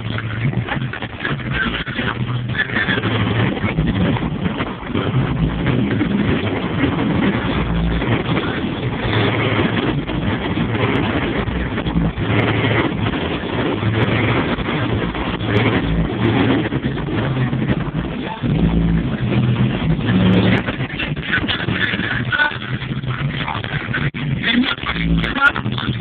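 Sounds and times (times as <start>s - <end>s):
truck engine exhaust rumble: 0.0s - 26.0s.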